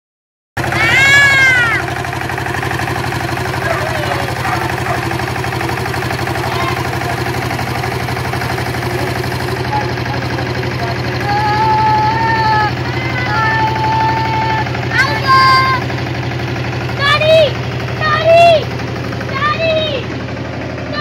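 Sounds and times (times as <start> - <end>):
tractor engine running: 0.6 - 21.0
child calling: 0.7 - 1.9, 3.6 - 5.1, 6.3 - 7.3, 11.2 - 15.9, 17.0 - 18.7, 19.3 - 20.0.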